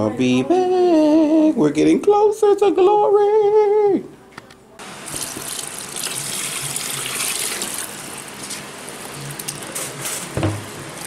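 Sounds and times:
broth pouring into a pot: 5.0s - 9.7s
knock: 10.4s - 10.6s.

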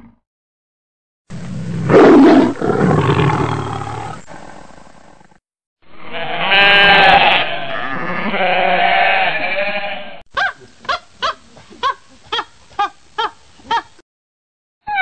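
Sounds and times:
animal growling roughly: 1.7s - 5.4s
flock of sheep bleating: 5.9s - 10.2s.

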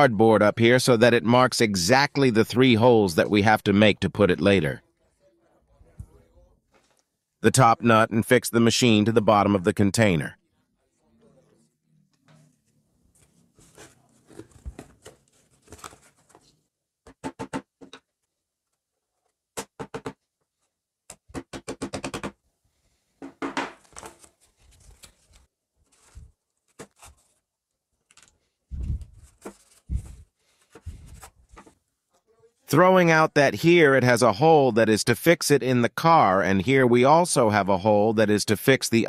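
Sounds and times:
cardboard handling: 12.2s - 16.6s, 23.7s - 31.8s
hammer tapping cardboard over metal: 17.0s - 18.1s, 19.5s - 20.3s, 21.1s - 22.4s.

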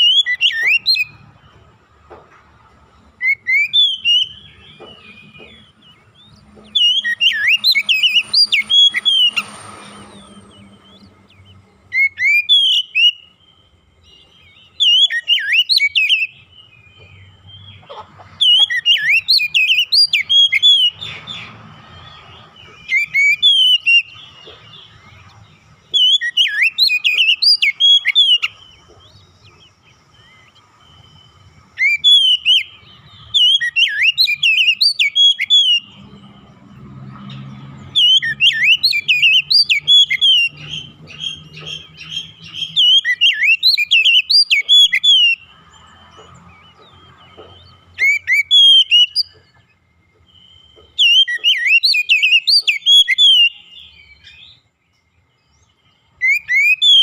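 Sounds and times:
bird singing whistled phrases: 0.0s - 1.3s, 3.2s - 17.2s, 18.4s - 21.5s, 22.6s - 25.2s, 25.8s - 36.0s, 37.9s - 45.5s, 48.0s - 49.5s, 51.0s - 54.6s, 56.2s - 57.0s.

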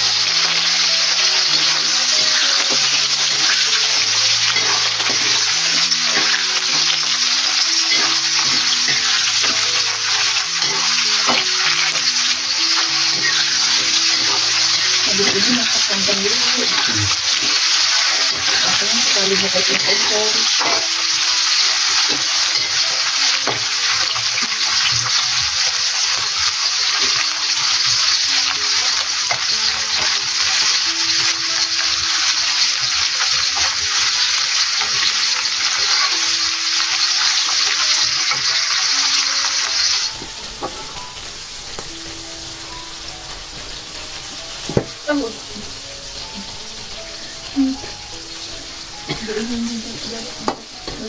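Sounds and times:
oil sizzling in a wok: 0.0s - 51.0s
metal spatula stirring: 1.4s - 16.0s.

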